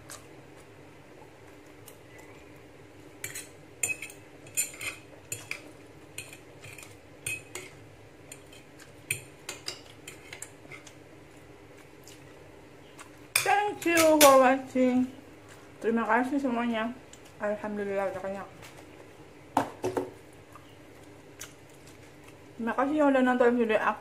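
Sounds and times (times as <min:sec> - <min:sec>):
cutlery scraping and clinking on plate: 0:03.2 - 0:07.7.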